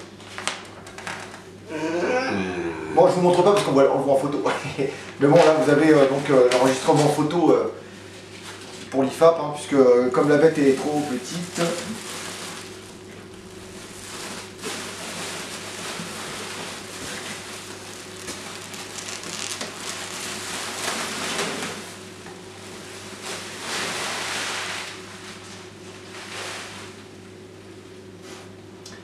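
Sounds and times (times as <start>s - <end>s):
plastic packing wrap crinkling: 0.2s - 1.4s, 10.0s - 25.4s.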